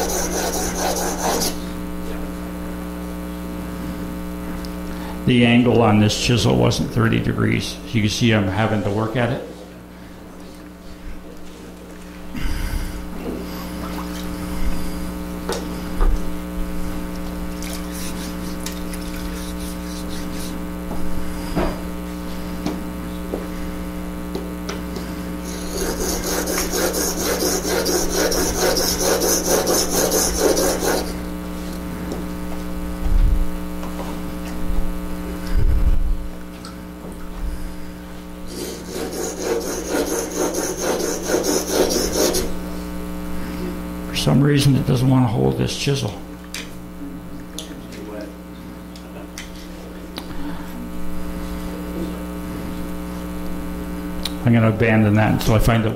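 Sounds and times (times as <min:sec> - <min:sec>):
chisel scraping on sharpening stone: 0:00.0 - 0:01.6, 0:25.4 - 0:31.2, 0:38.5 - 0:42.5
steady electrical hum: 0:00.0 - 0:55.9.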